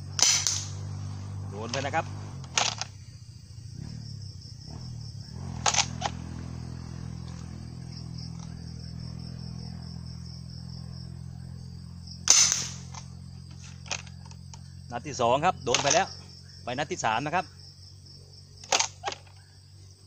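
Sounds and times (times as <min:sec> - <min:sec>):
insects chirping: 0:00.0 - 0:20.0
loud gunshot: 0:00.2 - 0:00.8, 0:12.3 - 0:13.0
shotgun pump clacks: 0:05.6 - 0:06.2, 0:15.7 - 0:16.1, 0:18.6 - 0:19.4.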